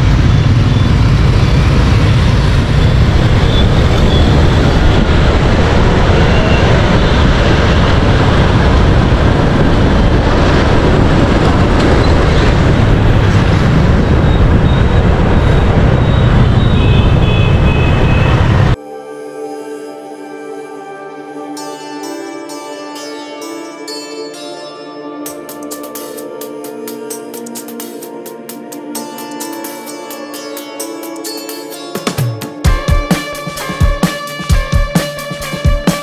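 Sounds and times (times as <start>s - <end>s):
motorbike traffic noise: 0.0s - 18.8s
music: 18.7s - 36.0s.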